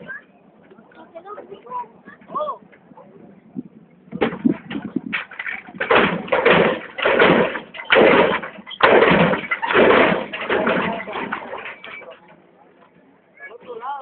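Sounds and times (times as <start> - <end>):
car crashing down: 4.2 - 12.2.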